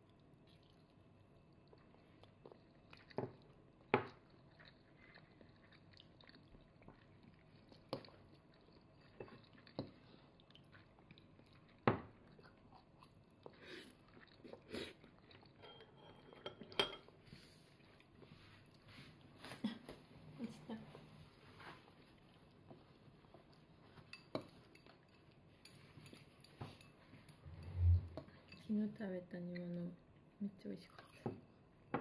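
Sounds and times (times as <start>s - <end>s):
soft chewing: 0.0s - 32.0s.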